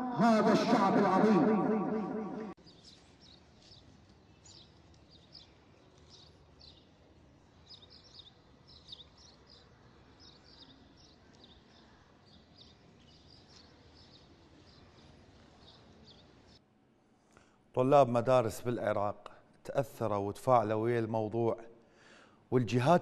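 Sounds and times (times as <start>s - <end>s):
small birds chirping: 2.6s - 16.6s.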